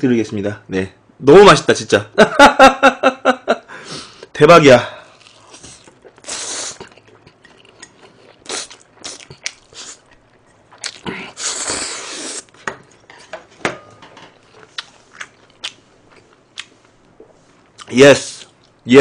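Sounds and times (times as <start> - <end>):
chewing with wet mouth clicks: 5.2 - 11.1, 14.5 - 16.7
person slurping noodles: 5.3 - 7.0, 8.4 - 10.1, 11.0 - 12.5.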